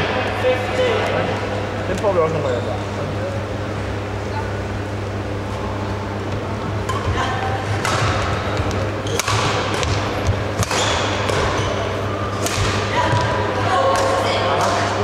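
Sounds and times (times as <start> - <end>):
steady low hum: 0.0 - 15.0
rackets hitting shuttlecock: 6.8 - 14.9.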